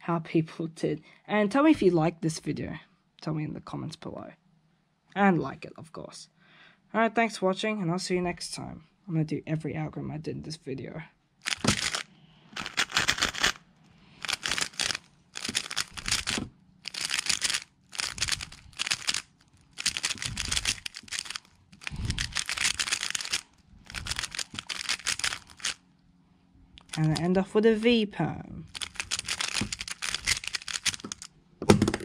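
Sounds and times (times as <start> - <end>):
rapid clicking of puzzle cube turns: 11.4 - 13.6, 14.2 - 25.8, 26.8 - 27.3, 28.7 - 32.0.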